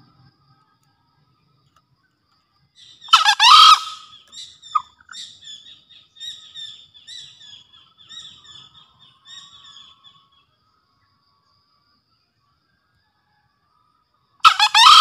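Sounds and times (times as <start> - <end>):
small bird chirping: 2.4 - 10.6
junglefowl crowing: 2.9 - 5.3, 14.4 - 15.0.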